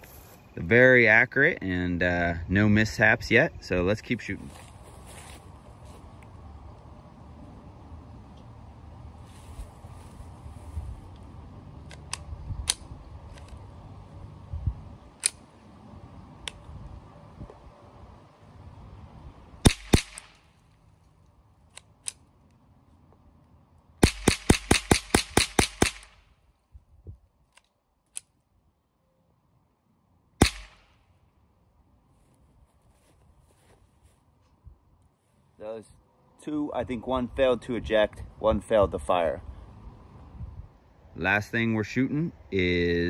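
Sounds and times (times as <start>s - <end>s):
rifle shots: 19.6s - 20.4s, 24.0s - 26.2s, 30.4s - 31.0s.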